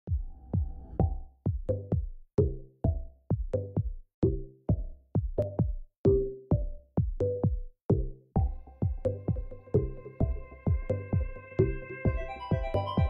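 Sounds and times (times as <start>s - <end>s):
electronic music with drum-machine beat: 0.1s - 13.0s.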